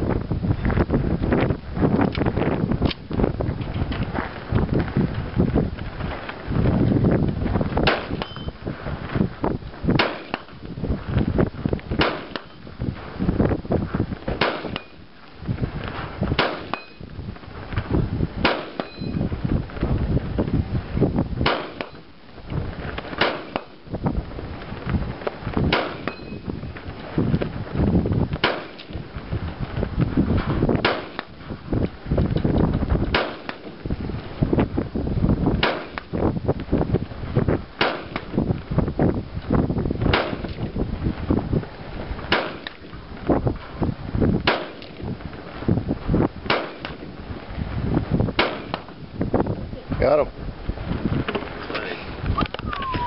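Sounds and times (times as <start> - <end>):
wind rumble on microphone: 0.0 - 53.0
rifle shots: 7.8 - 8.4, 9.9 - 10.6, 12.0 - 12.6, 14.3 - 15.0, 16.3 - 17.0, 18.4 - 19.1, 21.4 - 22.1, 23.0 - 23.8, 25.7 - 26.4, 28.4 - 28.9, 30.8 - 31.3, 33.1 - 33.8, 35.6 - 36.1, 37.8 - 38.3, 40.1 - 40.6, 42.3 - 42.8, 44.4 - 45.0, 46.4 - 47.1, 48.4 - 48.9.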